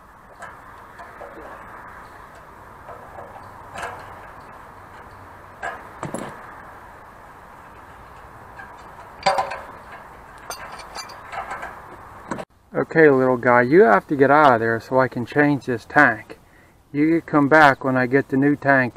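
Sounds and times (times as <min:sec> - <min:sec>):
wrench clinking on metal fittings: 0:08.0 - 0:11.9.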